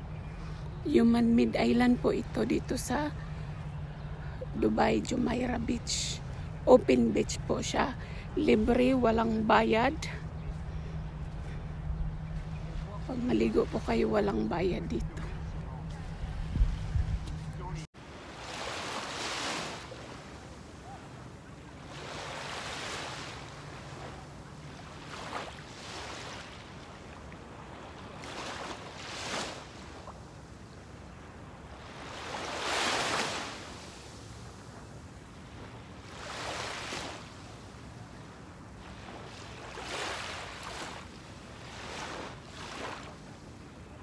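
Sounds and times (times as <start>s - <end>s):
small waves lapping on sand: 12.3s - 44.0s.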